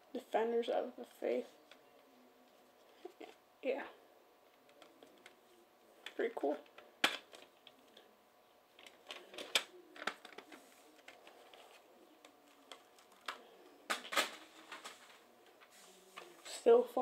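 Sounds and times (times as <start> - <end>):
plastic cases clicking and clattering: 8.8 - 11.8, 12.5 - 15.2.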